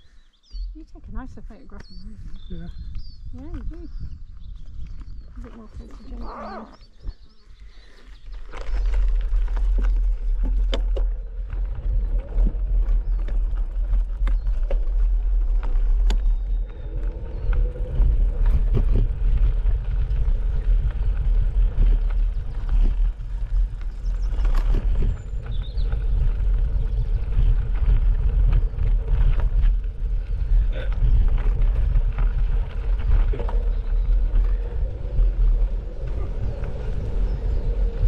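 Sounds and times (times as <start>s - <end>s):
wind rumble on microphone: 0.0s - 38.0s
tyres crunching over gravel: 2.8s - 38.0s
bicycle clicks and rattles: 8.4s - 38.0s.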